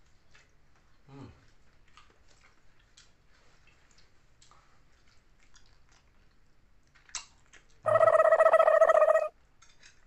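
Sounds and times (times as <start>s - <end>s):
faint chewing and mouth sounds: 0.0s - 7.8s, 9.4s - 10.0s.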